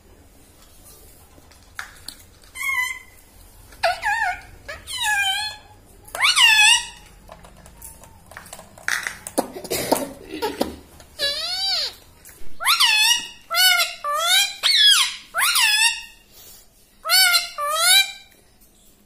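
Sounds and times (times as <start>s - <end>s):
parakeets squawking: 2.5s - 3.2s, 3.8s - 7.2s, 11.1s - 16.2s, 17.0s - 18.3s.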